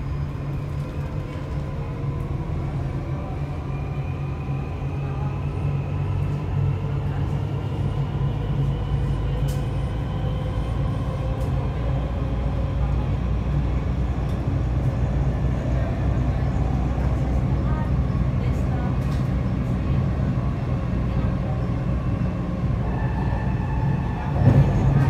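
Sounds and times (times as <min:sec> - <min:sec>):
train wheels rumbling on rail: 0:00.0 - 0:25.0.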